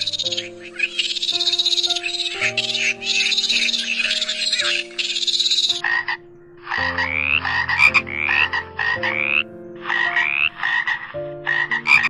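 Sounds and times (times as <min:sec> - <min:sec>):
frog croaking: 0:00.0 - 0:12.0.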